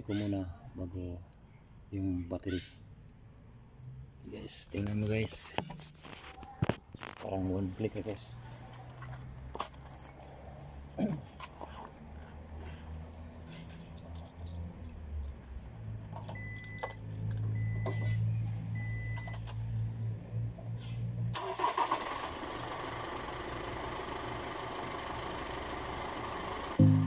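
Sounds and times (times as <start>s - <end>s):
diesel engine running: 21.4s - 27.0s.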